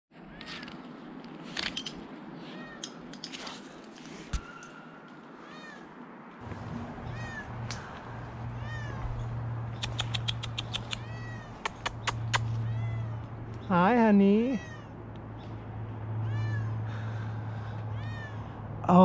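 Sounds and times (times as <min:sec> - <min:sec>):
cat meowing: 0:07.0 - 0:07.9, 0:08.5 - 0:09.2, 0:10.4 - 0:13.3, 0:14.6 - 0:15.0, 0:16.2 - 0:16.9, 0:17.9 - 0:18.6
sharp clicks: 0:09.7 - 0:12.5.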